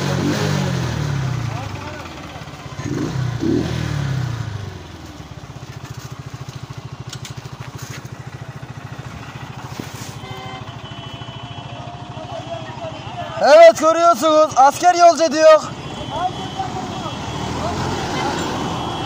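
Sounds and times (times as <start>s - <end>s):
motorcycle engine puttering: 0.0s - 14.7s.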